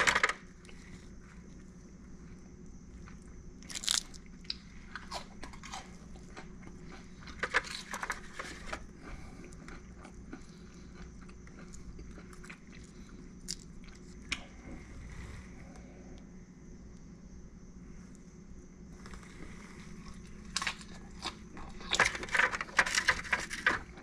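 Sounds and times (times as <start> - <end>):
crab shell cracking and crunching: 3.6 - 14.4.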